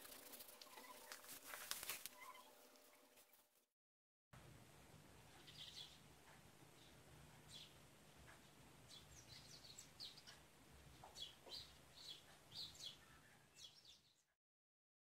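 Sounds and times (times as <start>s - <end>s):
birds chirping: 0.2s - 1.2s, 5.3s - 14.3s
low steady hum: 4.4s - 13.6s.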